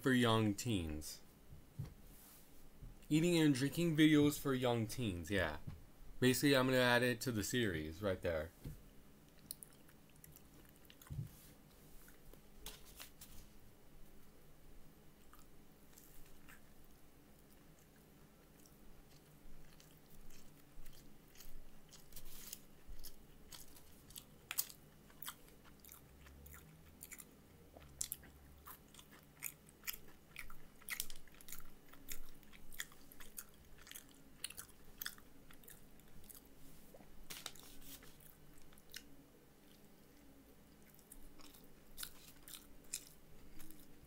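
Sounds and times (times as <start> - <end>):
chewing and crunching: 9.3 - 11.3, 15.2 - 44.0.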